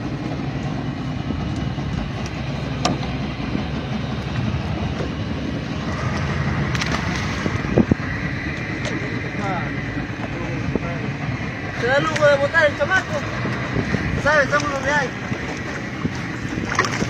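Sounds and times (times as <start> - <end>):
boat motor rumbling: 0.0 - 17.0.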